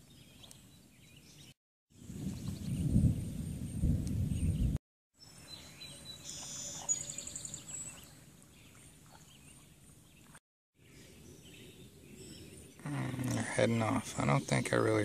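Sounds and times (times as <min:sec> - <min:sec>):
songbirds singing: 0:00.0 - 0:15.0
faint outdoor ambience: 0:05.2 - 0:15.0.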